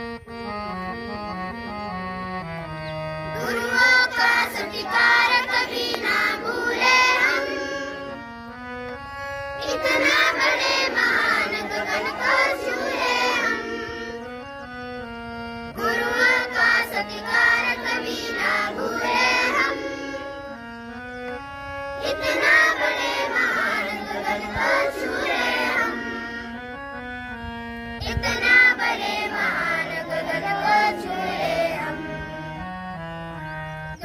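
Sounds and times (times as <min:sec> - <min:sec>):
harmonium chords: 0:00.0 - 0:34.0
children singing in chorus: 0:03.3 - 0:08.3, 0:09.5 - 0:14.7, 0:15.7 - 0:20.7, 0:22.0 - 0:26.6, 0:28.0 - 0:32.8.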